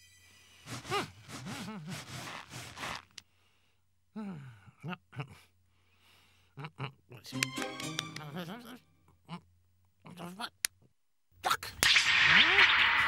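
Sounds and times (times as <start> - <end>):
raspy scraping noise: 0.6 - 3.1
cartoon voice gasps and grunts: 0.7 - 2.8.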